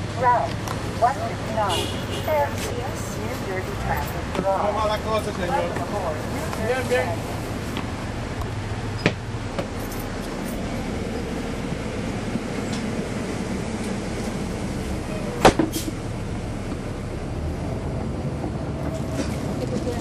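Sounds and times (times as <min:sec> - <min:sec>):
bus diesel engine drone: 0:00.0 - 0:20.0
sharp clunks from bus: 0:09.0 - 0:09.8, 0:15.4 - 0:16.0.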